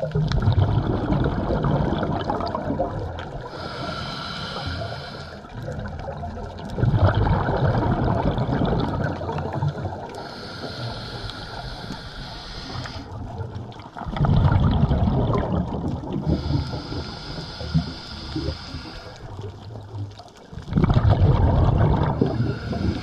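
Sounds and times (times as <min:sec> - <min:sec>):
bubbling exhale underwater: 0:00.0 - 0:23.0
regulator hissing inhale: 0:03.4 - 0:05.5, 0:10.1 - 0:13.2, 0:16.2 - 0:19.4, 0:22.2 - 0:23.0.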